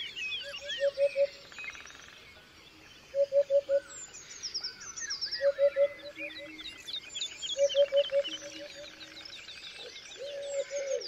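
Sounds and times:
birds chirping and trilling: 0:00.0 - 0:11.0
lower bird call: 0:05.1 - 0:06.7, 0:07.6 - 0:09.2.

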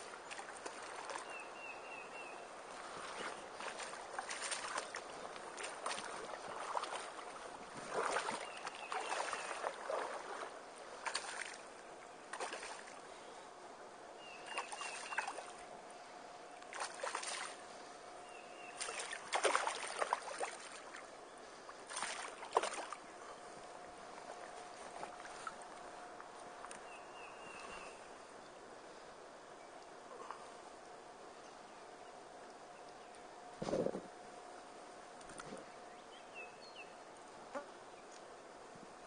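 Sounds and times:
creek water sloshing and splashing: 0:00.0 - 0:13.3, 0:14.2 - 0:28.1.

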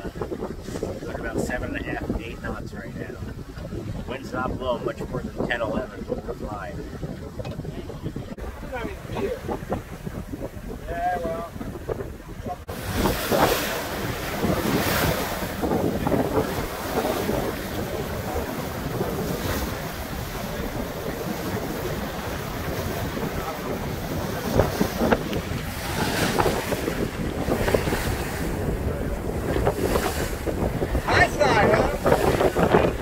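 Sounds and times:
bow wave splashing along hull: 0:00.0 - 0:33.0
wind buffeting microphone: 0:00.0 - 0:33.0.

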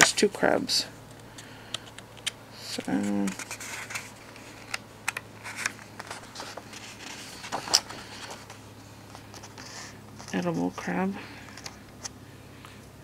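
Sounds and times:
paper pages turning: 0:01.2 - 0:10.8.

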